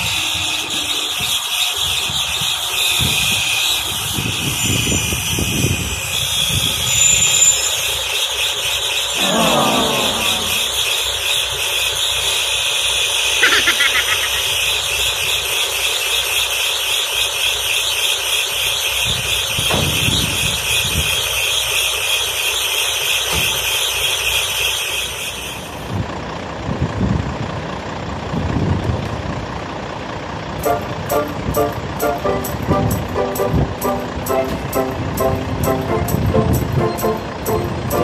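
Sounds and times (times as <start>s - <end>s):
diesel engine idling: 8.7s - 16.9s, 24.0s - 38.0s.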